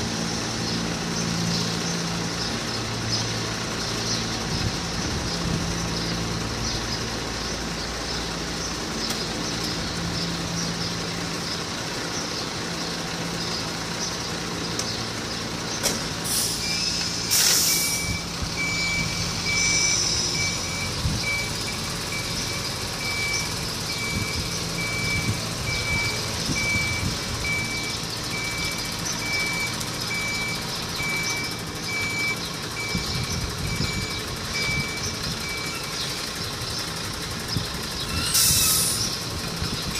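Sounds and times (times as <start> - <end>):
truck engine idling: 0.0 - 39.9
air brakes hissing: 16.2 - 18.3, 38.1 - 39.2
reversing alarm beeping: 16.5 - 36.0.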